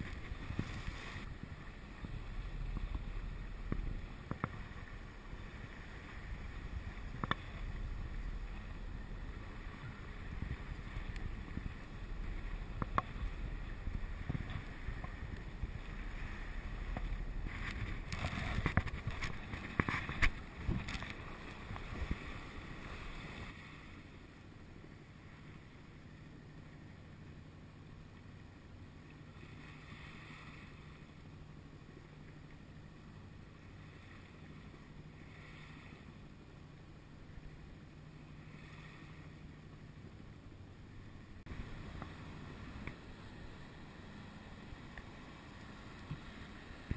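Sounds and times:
wind buffeting microphone: 0.0s - 23.5s
water washing past boat: 0.0s - 27.1s
steady low hum: 0.0s - 46.9s.

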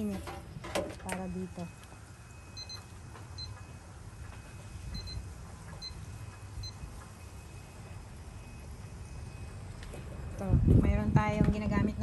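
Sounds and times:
low steady rumble: 0.0s - 12.0s
kitchen timer beeps: 1.2s - 7.8s.

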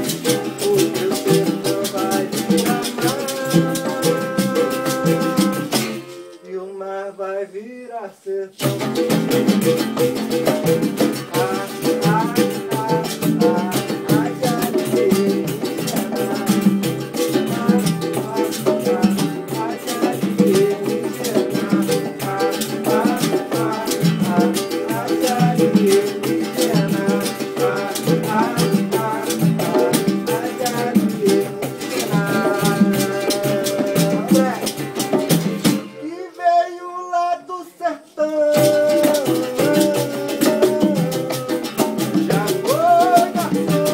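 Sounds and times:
congas and hand drum: 0.0s - 6.4s, 8.6s - 36.2s, 38.4s - 43.9s
strummed acoustic guitar: 0.0s - 6.8s, 8.6s - 36.7s, 38.3s - 43.9s
berimbau: 0.0s - 8.0s, 8.6s - 36.6s, 38.2s - 43.9s
man singing: 0.0s - 43.9s.

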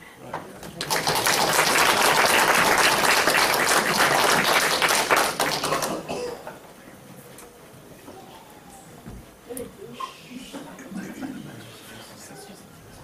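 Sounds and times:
audience applauding: 0.8s - 6.1s.

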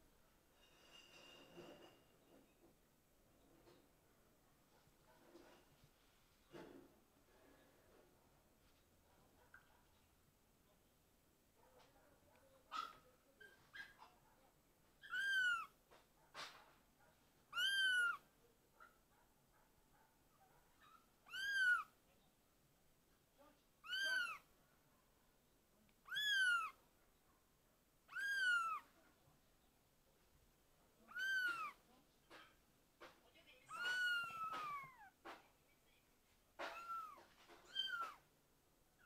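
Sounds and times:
kitten meowing: 15.0s - 15.8s, 17.5s - 18.2s, 21.2s - 21.9s, 23.8s - 24.5s, 26.0s - 26.8s, 28.1s - 28.9s, 31.1s - 31.8s, 33.7s - 35.1s, 36.6s - 38.2s.

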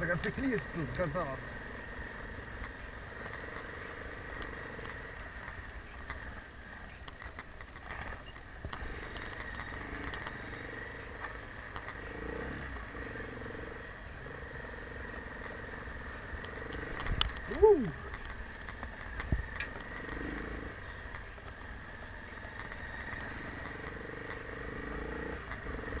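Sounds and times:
motorcycle clicks and rattles: 0.0s - 12.1s, 15.2s - 24.6s, 25.3s - 26.0s
motorcycle engine running: 0.0s - 26.0s.

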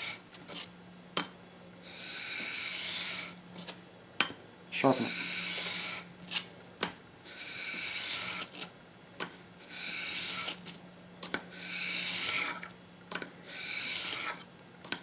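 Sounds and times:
blade scraping on sandpaper: 0.0s - 0.7s, 1.8s - 3.8s, 4.8s - 6.5s, 7.3s - 8.7s, 9.6s - 10.8s, 11.5s - 12.7s, 13.4s - 14.5s.

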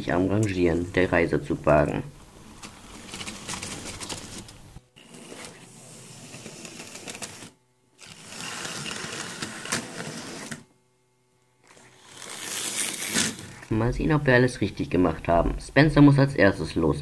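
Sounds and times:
small electric motor whirring: 5.0s - 10.7s, 11.6s - 13.7s.

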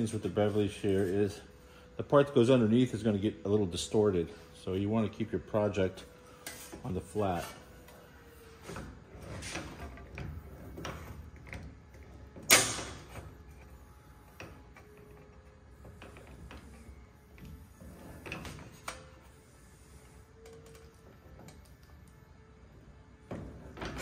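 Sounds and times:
bench shear cutting sheet metal: 12.4s - 13.7s.

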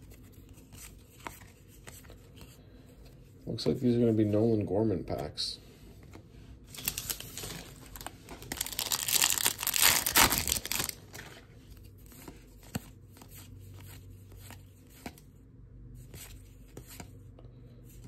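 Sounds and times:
plastic wrapper tearing and crinkling: 6.7s - 11.2s.

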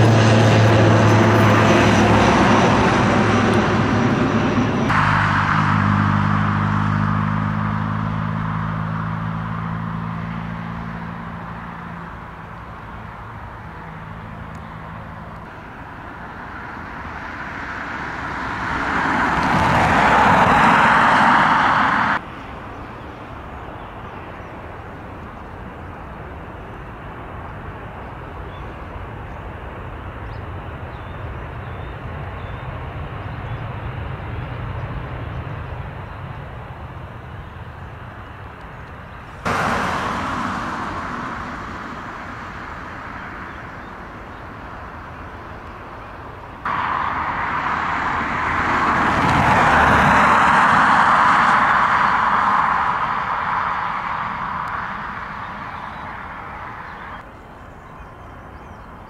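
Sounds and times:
jet engine roar: 0.0s - 57.3s
taxiing jet hum and whine: 0.0s - 58.0s
distant low rumble: 0.0s - 59.0s.

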